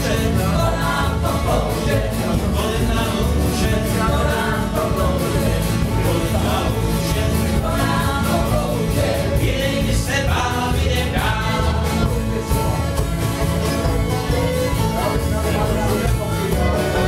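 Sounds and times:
bass beat: 0.0s - 17.0s
drum kit: 0.0s - 17.0s
man singing: 0.0s - 17.0s
strummed acoustic guitars: 0.0s - 17.0s
bowed fiddle: 4.7s - 17.0s.

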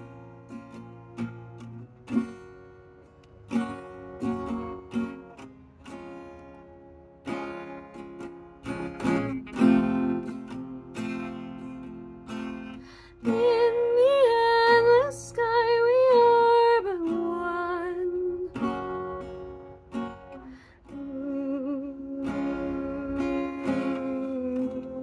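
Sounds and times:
acoustic guitar strumming: 0.0s - 25.0s
woman singing: 13.1s - 19.1s, 20.7s - 25.0s.

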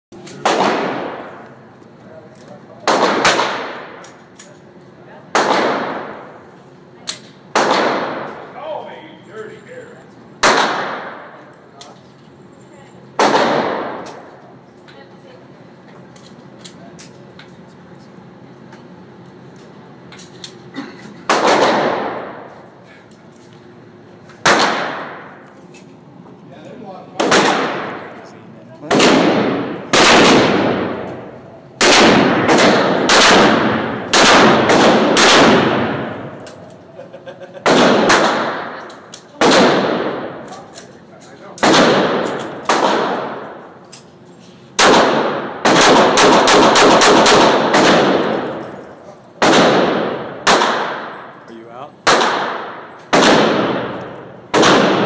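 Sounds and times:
handgun shots: 0.2s - 1.4s, 24.4s - 25.3s, 31.8s - 36.8s, 41.6s - 44.0s, 44.8s - 48.6s, 49.4s - 51.2s, 52.1s - 55.0s
gunshot echo: 0.4s - 1.4s, 2.9s - 4.0s, 5.3s - 6.2s, 7.5s - 8.4s, 10.4s - 11.4s, 13.2s - 14.3s, 21.3s - 22.5s, 24.4s - 25.4s, 27.2s - 28.1s, 28.9s - 36.4s, 37.6s - 38.8s, 39.4s - 40.5s, 41.6s - 43.6s, 44.8s - 48.5s, 49.4s - 51.2s, 52.1s - 55.0s.

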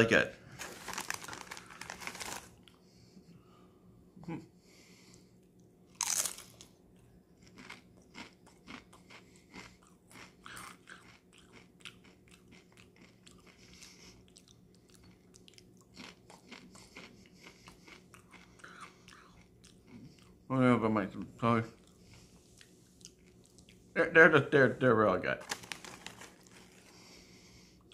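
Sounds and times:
tortilla chips crunching: 0.6s - 2.8s, 5.9s - 6.8s, 7.4s - 13.8s, 25.4s - 27.0s.

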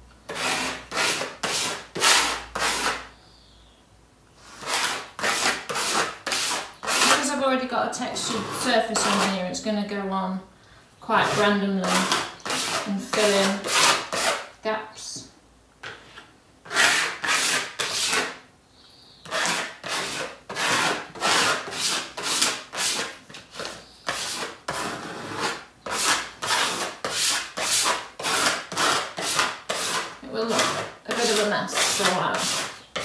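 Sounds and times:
sponge scrubbing paint on board: 0.3s - 3.0s, 4.4s - 7.4s, 19.3s - 33.0s.

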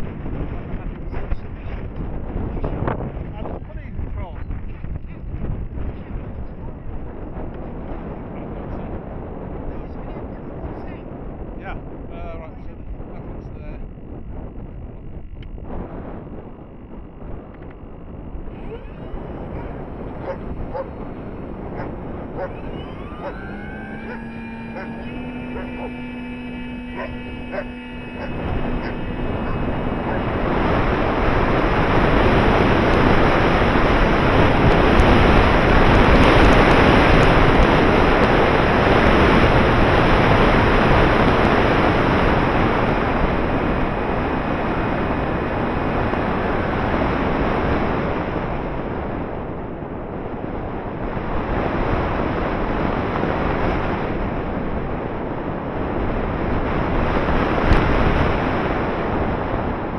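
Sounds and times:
wind rushing over camera: 0.0s - 59.9s.

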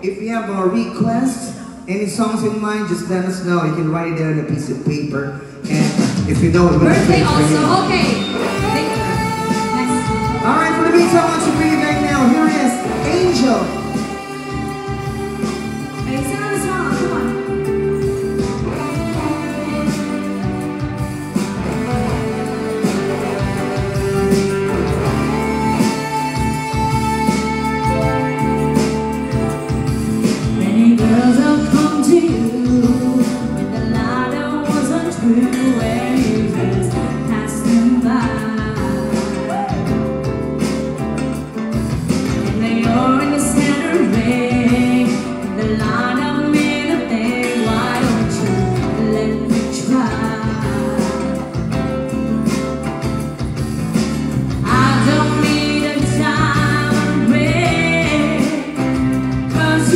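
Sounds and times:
keyboard: 0.0s - 59.9s
electric guitar: 6.6s - 59.9s
woman singing: 7.0s - 20.2s, 25.5s - 40.2s, 42.4s - 51.7s, 54.6s - 59.9s.

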